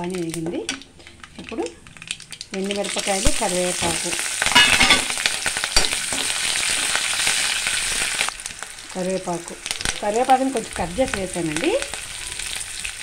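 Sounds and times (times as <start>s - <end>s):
chillies sizzling in hot oil: 0.0s - 13.0s.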